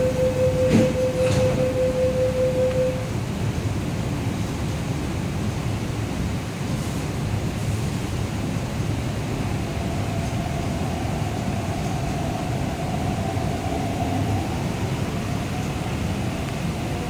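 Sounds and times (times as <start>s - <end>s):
faint motor whine: 0.0s - 3.6s
train rumble: 0.0s - 17.0s.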